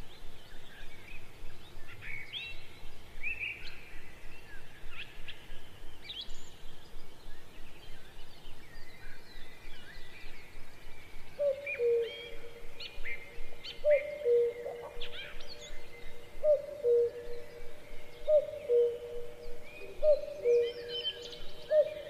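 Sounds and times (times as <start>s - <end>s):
birds chirping: 6.1s - 22.0s.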